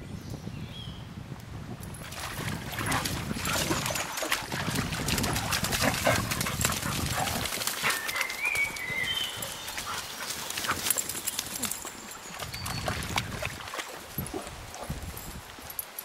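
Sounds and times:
water splashing: 2.0s - 15.0s
paws scuffling in mud: 2.0s - 16.0s
dog sounds: 2.7s - 12.2s.

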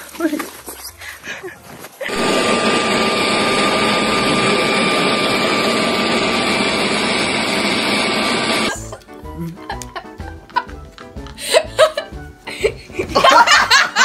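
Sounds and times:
leaf blower running: 2.1s - 8.9s.

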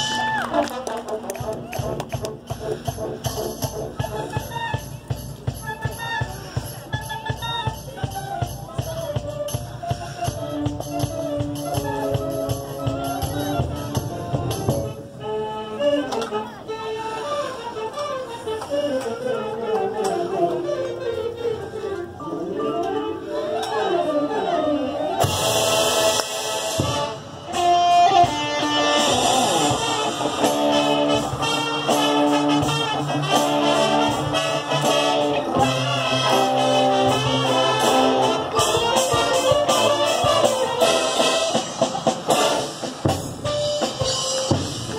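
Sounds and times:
marching band playing: 0.0s - 44.9s
steady drum beat: 1.4s - 14.9s, 25.2s - 44.9s.

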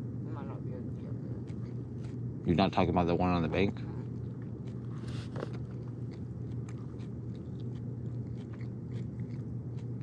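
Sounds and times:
person chewing crunchy food: 1.4s - 2.6s, 3.7s - 10.0s.

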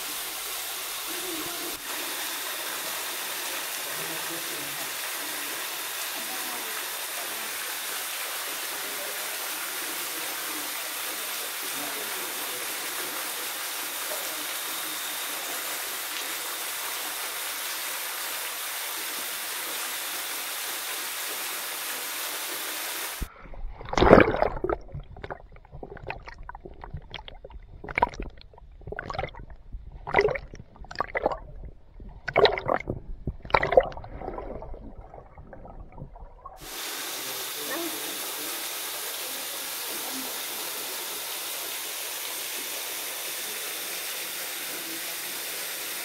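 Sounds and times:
waterfall splashing into pool: 0.0s - 23.3s, 23.9s - 29.4s, 36.6s - 46.0s
muffled underwater gurgling: 23.2s - 36.6s.

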